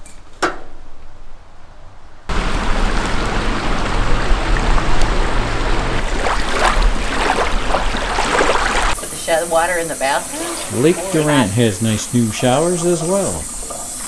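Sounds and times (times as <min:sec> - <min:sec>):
small waves lapping on shore: 0:02.3 - 0:09.3
water splashes: 0:02.3 - 0:14.0.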